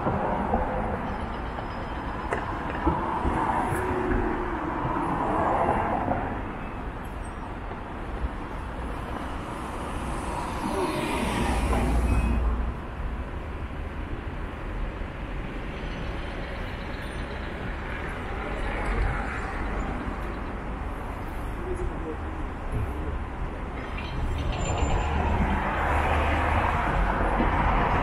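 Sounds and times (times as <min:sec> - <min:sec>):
cars driving past: 0:23.5 - 0:28.0.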